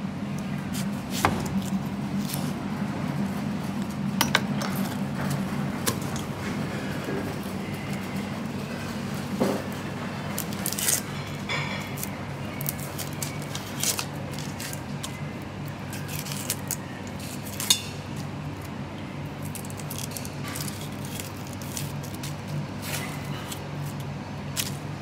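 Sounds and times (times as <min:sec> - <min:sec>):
onion skin crackling: 0:11.9 - 0:24.9.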